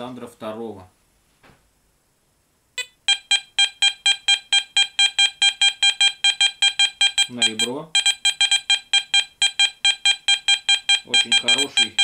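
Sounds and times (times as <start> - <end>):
metal detector high beeps: 2.8 - 12.0.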